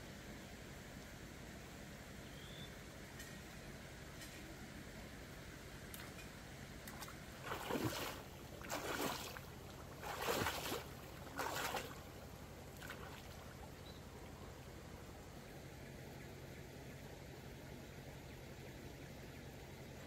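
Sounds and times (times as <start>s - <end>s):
water splashing: 6.8s - 14.4s.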